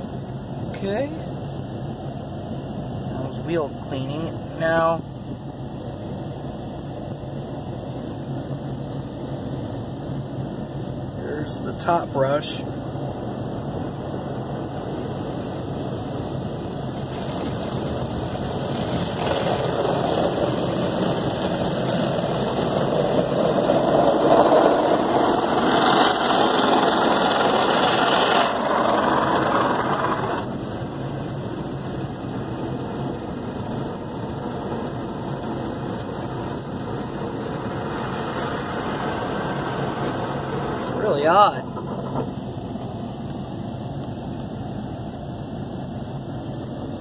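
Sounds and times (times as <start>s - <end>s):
water spraying: 14.0s - 47.0s
car wash brush swishing: 18.7s - 30.5s.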